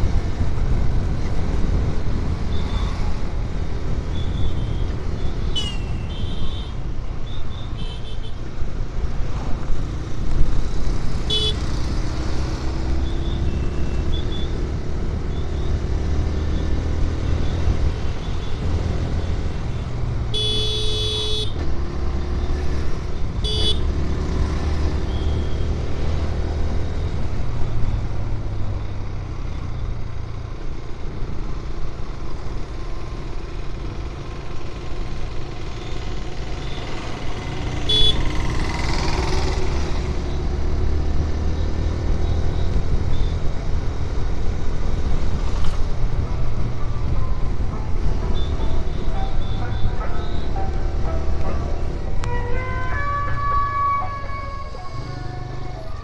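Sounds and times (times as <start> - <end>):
wind and motorcycle engine rumble: 0.0 - 56.0
horn beeps: 37.8 - 38.3, 48.3 - 50.7.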